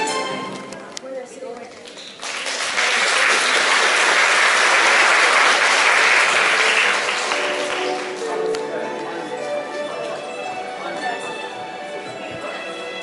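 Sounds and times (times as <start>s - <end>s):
audience applauding: 1.9s - 10.1s.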